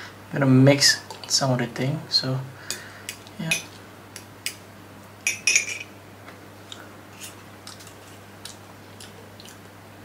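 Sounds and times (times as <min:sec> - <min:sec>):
fork clinking against glass: 0:05.3 - 0:05.9.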